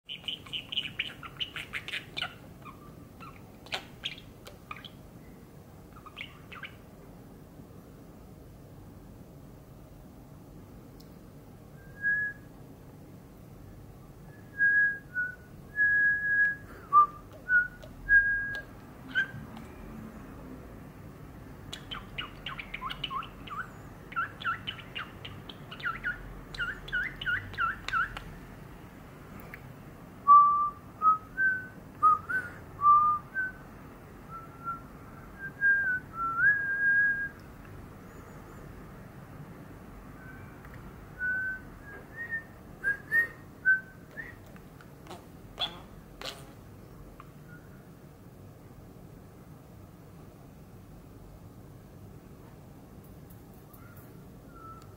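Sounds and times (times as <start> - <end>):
whistled notes: 54.5 - 54.9.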